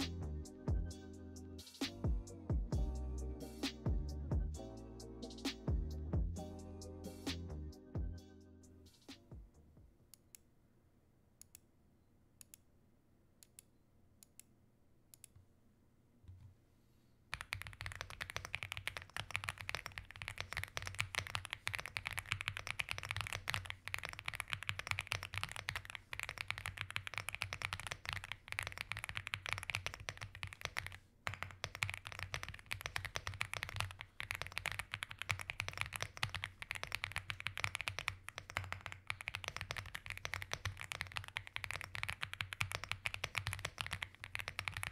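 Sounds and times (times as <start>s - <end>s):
mechanical keyboard typing: 17.3s - 44.9s.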